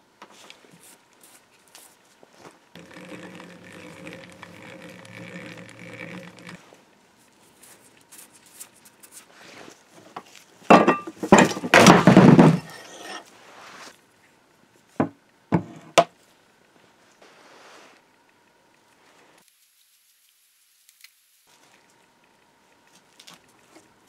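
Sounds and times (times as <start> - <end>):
steady hum: 2.7 - 8.5.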